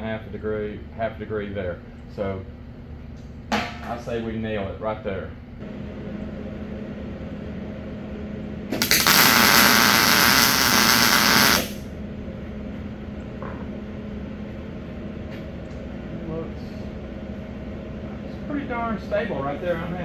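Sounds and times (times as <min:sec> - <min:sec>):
low shop hum: 0:00.0 - 0:20.0
arc welding buzzing crackle: 0:08.7 - 0:11.9.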